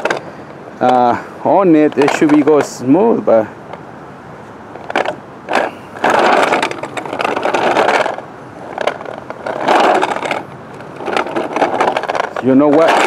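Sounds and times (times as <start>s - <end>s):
rattling rumble of wheels: 0.0s - 13.0s
dolly wheels knocking over ramp: 4.9s - 13.0s.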